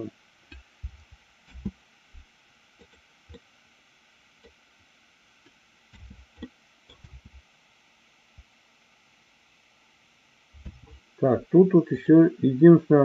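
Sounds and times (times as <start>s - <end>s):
thumps on desk: 10.6s - 11.0s.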